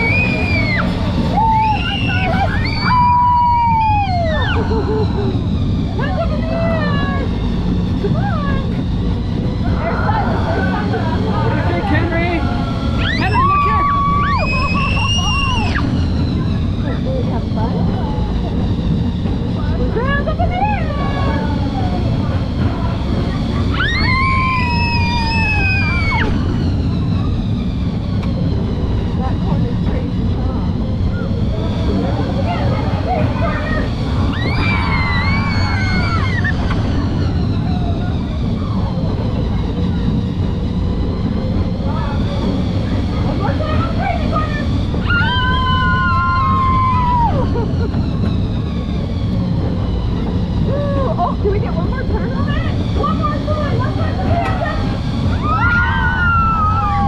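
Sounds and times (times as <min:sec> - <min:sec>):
ride car rumble and wind: 0:00.0 - 0:57.0
child screaming with excitement: 0:00.1 - 0:04.6, 0:13.0 - 0:15.8, 0:23.7 - 0:26.3.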